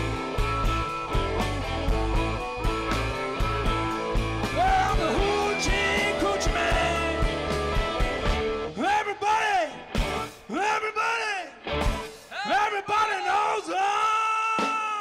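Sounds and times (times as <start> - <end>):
rock band playing: 0.0 - 12.9.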